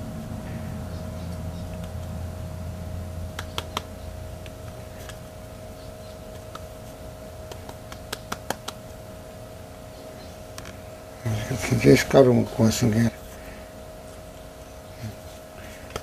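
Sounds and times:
faint steady hum: 0:00.0 - 0:16.0
fingers tapping wet clay: 0:03.3 - 0:05.2, 0:07.4 - 0:08.8.

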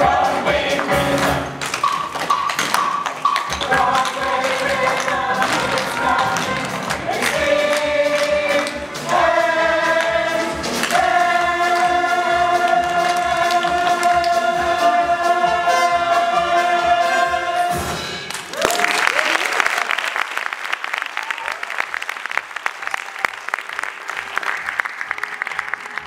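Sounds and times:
chorus singing with accompaniment: 0:00.0 - 0:02.4, 0:03.2 - 0:18.3
applause: 0:18.3 - 0:26.0.

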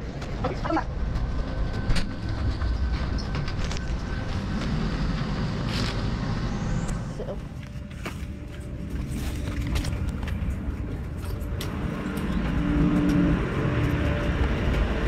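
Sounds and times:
ship machinery rumble: 0:00.0 - 0:15.0.

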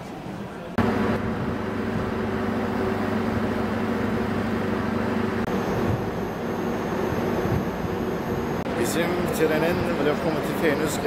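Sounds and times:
constant hum: 0:00.4 - 0:11.0
idling train drone: 0:00.8 - 0:09.8
faint high whine: 0:01.8 - 0:10.2.

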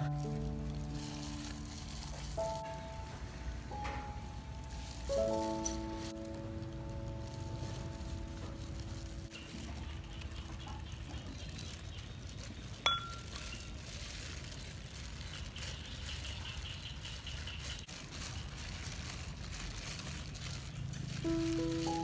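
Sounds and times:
hand-mixing in a metal bowl: 0:00.0 - 0:03.0, 0:04.2 - 0:22.0
background music: 0:00.0 - 0:09.4, 0:21.2 - 0:22.0
low outdoor rumble: 0:00.0 - 0:22.0
metallic clink against bowl: 0:12.8 - 0:13.5.

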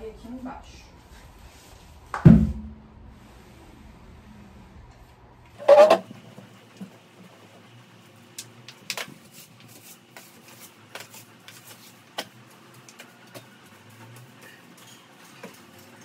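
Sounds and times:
broom sweeping a floor: 0:00.4 - 0:02.0, 0:09.0 - 0:13.5.

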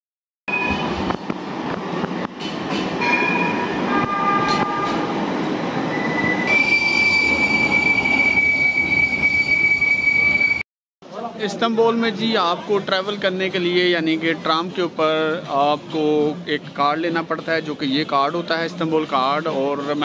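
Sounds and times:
trams rumbling on rails: 0:00.5 - 0:10.6
tram wheels squealing: 0:05.7 - 0:10.6.

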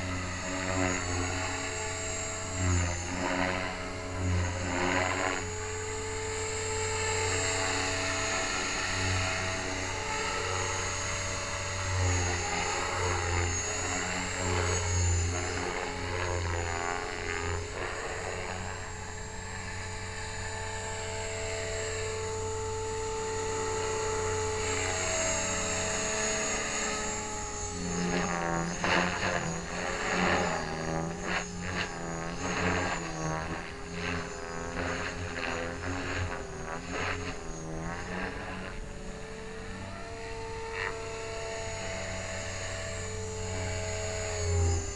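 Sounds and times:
rc helicopter motor whine: 0:00.0 - 0:44.9
rotor blades whooshing: 0:25.4 - 0:39.5.

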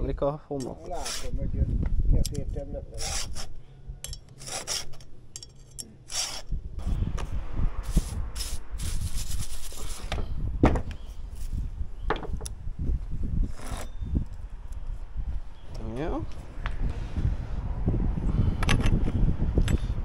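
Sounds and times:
file rasping on chainsaw chain: 0:02.9 - 0:03.6, 0:04.2 - 0:06.5.

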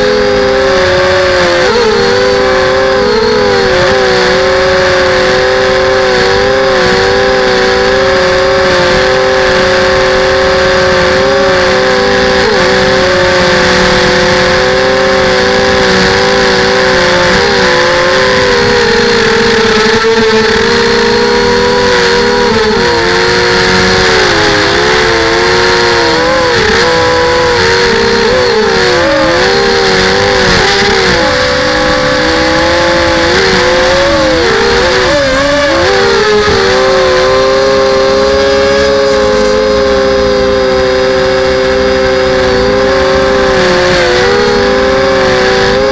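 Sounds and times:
drone motors whining: 0:00.0 - 0:45.9.

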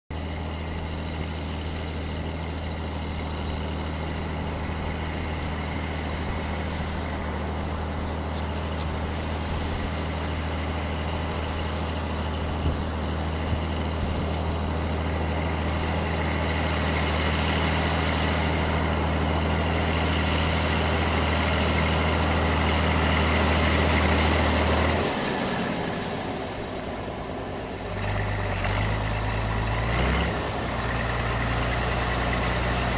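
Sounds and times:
tractor engine droning: 0:00.1 - 0:32.9.

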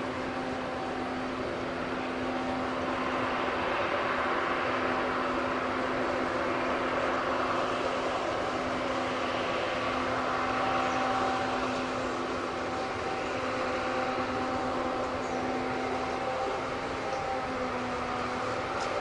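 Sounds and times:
combine harvester engine drone: 0:00.0 - 0:19.0.

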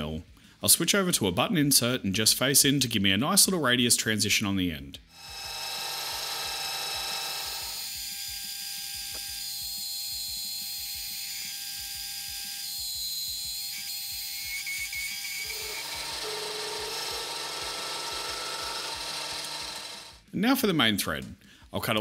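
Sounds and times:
metal lathe cutting steel: 0:05.2 - 0:20.2.

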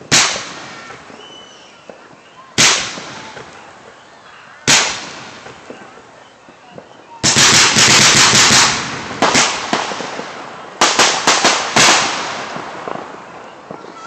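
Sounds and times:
fireworks bangs and crackling: 0:00.0 - 0:14.0.

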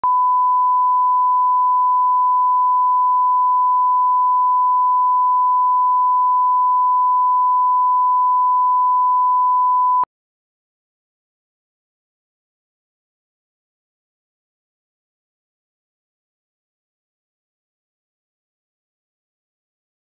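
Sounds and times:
pure test tone beep: 0:00.0 - 0:10.1.

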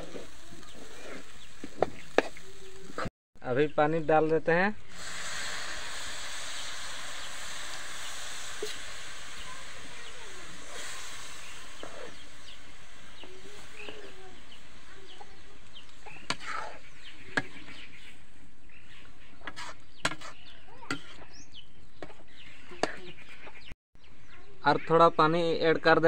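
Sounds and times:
water hissing in hot pan: 0:00.0 - 0:03.1, 0:04.8 - 0:18.2.

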